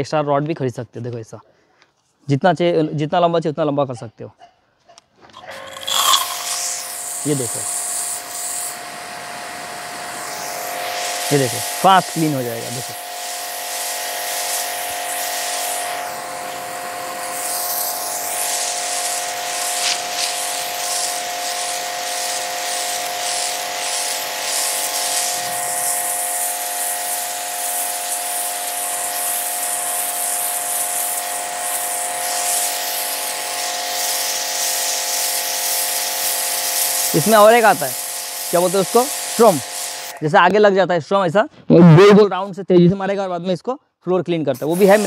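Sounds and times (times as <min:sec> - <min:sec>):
pressure washer motor hum: 0:05.4 - 0:40.5, 0:44.6 - 0:45.0
water jet hissing on concrete: 0:05.4 - 0:40.6, 0:44.5 - 0:45.0.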